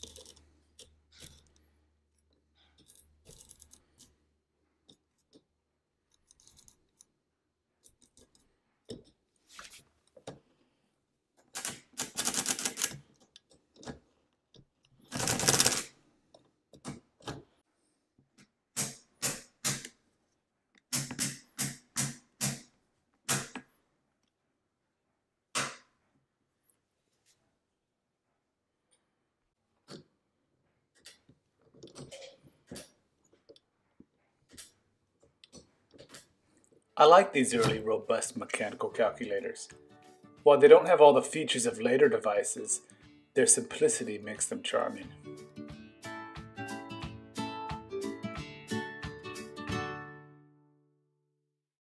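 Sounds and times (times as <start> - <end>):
calculator crank clattering: 15.2 - 15.8.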